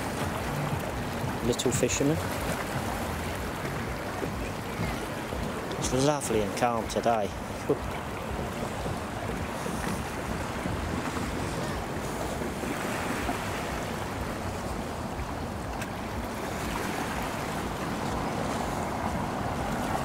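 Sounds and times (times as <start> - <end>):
sea noise: 0.0 - 20.0
wind buffeting microphone: 7.4 - 20.0.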